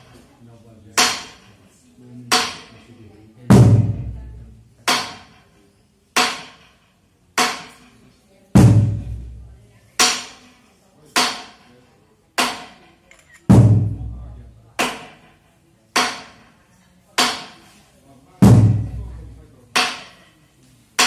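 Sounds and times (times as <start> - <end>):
deep drum beat: 3.5 - 4.4, 8.6 - 9.5, 13.5 - 14.4, 18.4 - 19.3.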